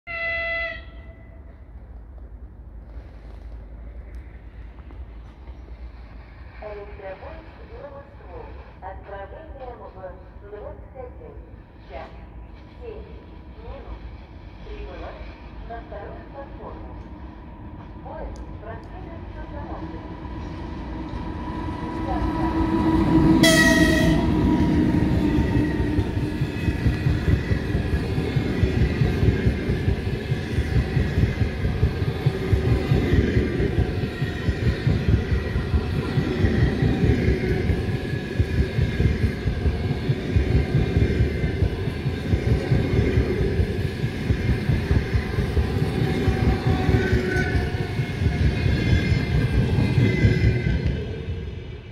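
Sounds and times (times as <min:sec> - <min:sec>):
train horn blast: 0:00.0 - 0:01.4, 0:23.2 - 0:24.9
train coaches rumbling past: 0:00.1 - 0:51.9.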